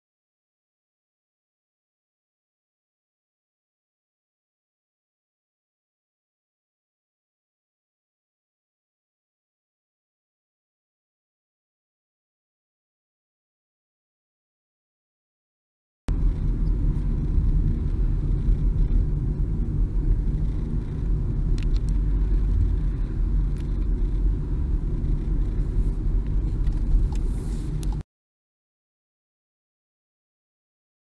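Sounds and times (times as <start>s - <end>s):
helicopter rotor rumble: 16.2s - 27.1s.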